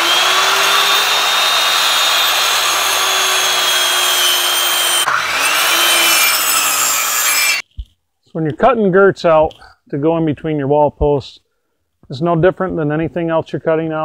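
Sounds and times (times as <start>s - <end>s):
circular saw cutting wood: 0.0s - 7.6s.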